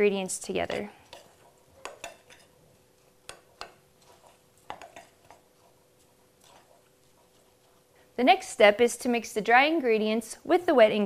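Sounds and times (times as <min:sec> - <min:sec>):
utensil stirring in glass bowl: 0:00.2 - 0:08.4.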